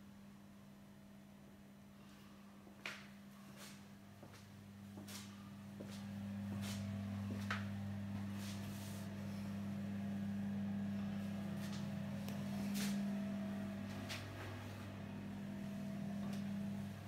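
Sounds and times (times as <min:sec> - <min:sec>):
low hum: 0:03.9 - 0:17.0.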